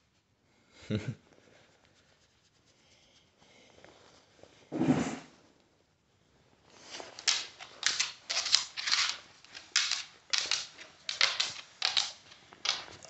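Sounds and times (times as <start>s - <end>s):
hand scratching cat fur: 1.6s - 3.3s.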